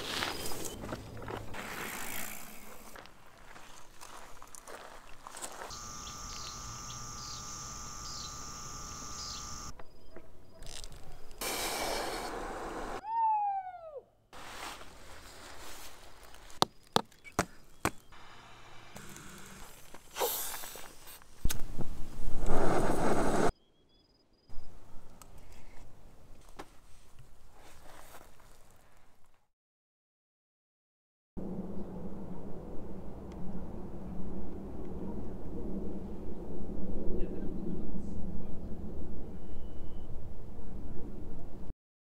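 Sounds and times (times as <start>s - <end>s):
insect trill: 5.6s - 9.9s
bird call swooping downward: 5.7s - 9.7s
camp stove burner hissing: 5.7s - 9.7s, 11.4s - 13.0s, 18.2s - 21.2s.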